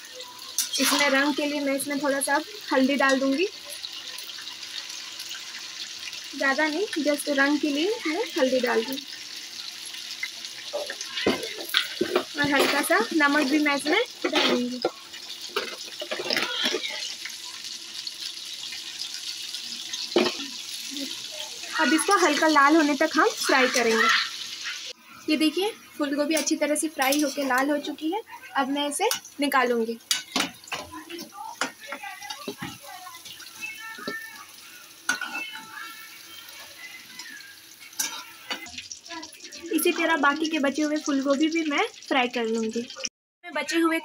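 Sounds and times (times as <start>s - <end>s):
frying in hot oil: 0.0s - 44.0s
metal spatula scraping pan: 10.6s - 17.1s, 35.1s - 35.8s, 37.8s - 38.7s.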